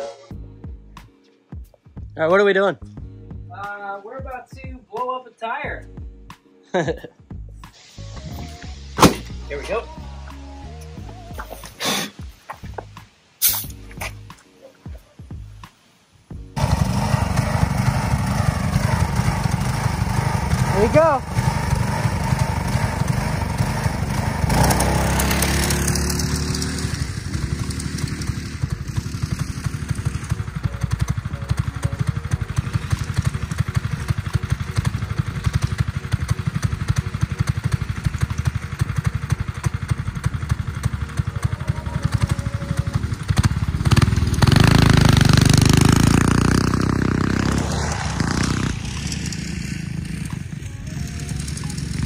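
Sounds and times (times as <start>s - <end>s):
go-kart engine revving: 16.6s - 52.0s.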